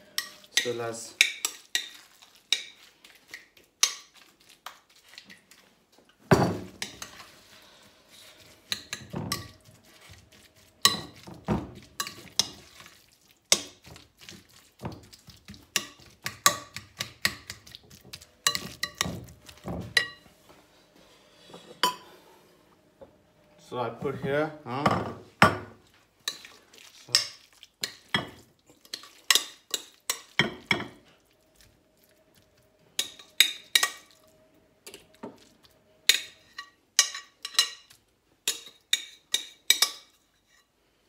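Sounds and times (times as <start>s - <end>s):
spoon clinking and scraping glass bowl: 8.2s - 13.8s, 15.7s - 20.3s, 21.6s - 22.1s, 33.0s - 34.2s, 36.1s - 40.7s.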